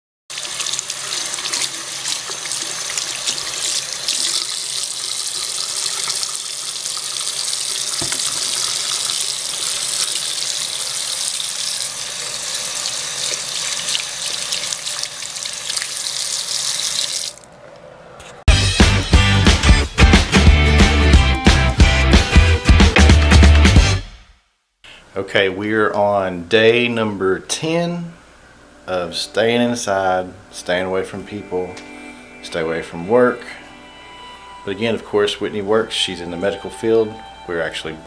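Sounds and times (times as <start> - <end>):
faucet running into a sink: 0.3 - 17.4.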